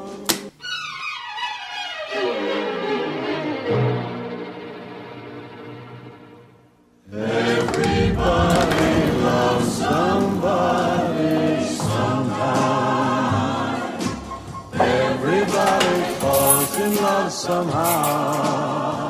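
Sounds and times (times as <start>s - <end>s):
choir singing with accompaniment: 7.1s - 19.0s.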